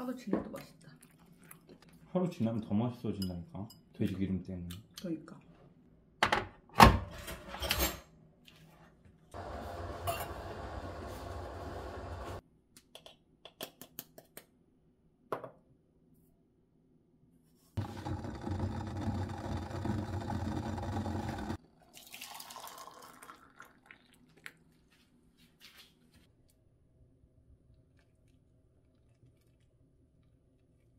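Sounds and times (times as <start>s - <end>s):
kitchenware clicks and knocks: 6.2s - 8.0s
water pouring into kettle: 17.8s - 24.6s.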